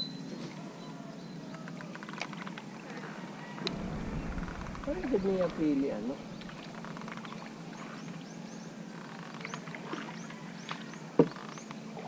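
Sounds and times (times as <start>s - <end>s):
steady low hum: 3.7s - 8.8s.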